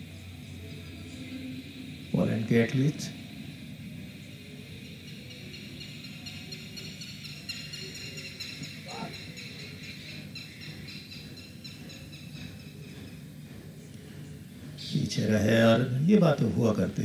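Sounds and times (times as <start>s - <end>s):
high-pitched animal chirring calls: 4.8s - 13.2s.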